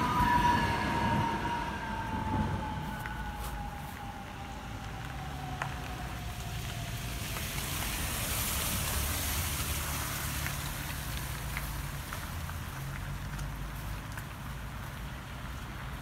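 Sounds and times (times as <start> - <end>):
faint electric train whine: 0.0 - 7.0
low car engine hum: 0.0 - 16.0
car tyres hissing on wet road: 2.6 - 16.0.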